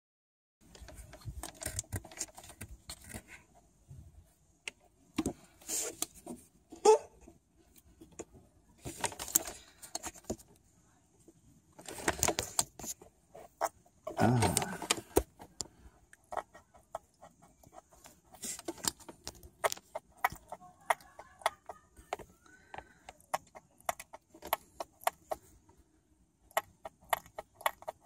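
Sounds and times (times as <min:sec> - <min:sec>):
small metallic clicks and scrapes: 0:00.6 - 0:03.5, 0:26.5 - 0:28.0.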